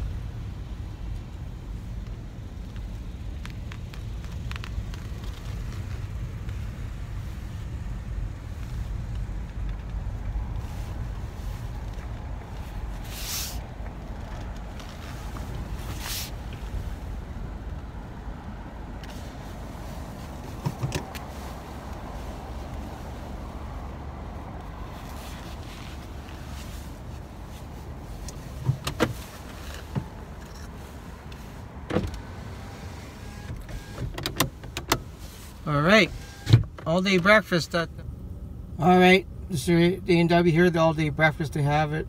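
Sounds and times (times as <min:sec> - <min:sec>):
car driving rumble from inside: 0:00.0 - 0:42.0
short hissing noises: 0:13.0 - 0:13.7, 0:15.1 - 0:16.8.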